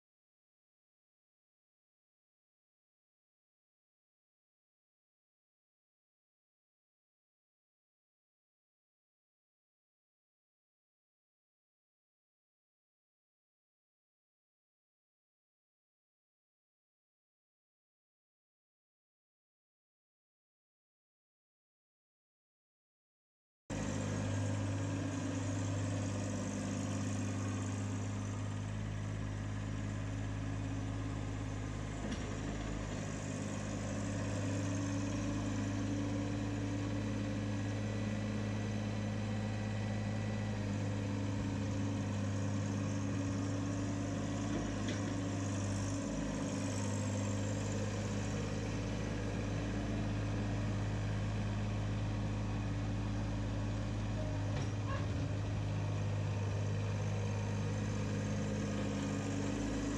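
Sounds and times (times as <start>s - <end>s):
tractor diesel engine running: 23.7s - 59.9s.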